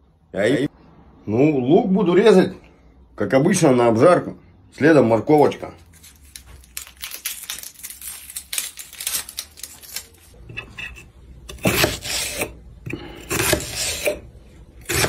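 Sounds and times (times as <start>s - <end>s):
knife scraping onion skin: 5.8s - 15.0s
knife slicing onto cutting board: 11.5s - 12.6s.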